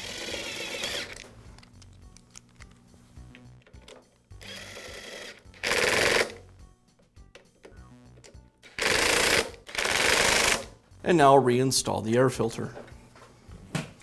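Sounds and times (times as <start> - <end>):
cordless screwdriver motor: 0.0 - 1.2, 4.4 - 6.3.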